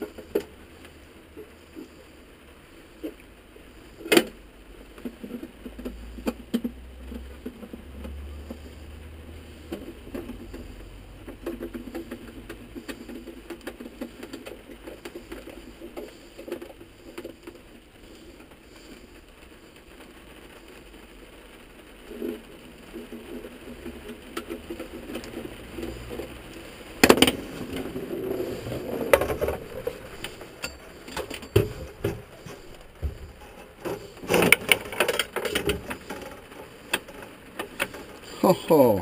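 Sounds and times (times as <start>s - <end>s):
light tapping and scraping: 9.5s - 19.2s, 22.1s - 38.4s.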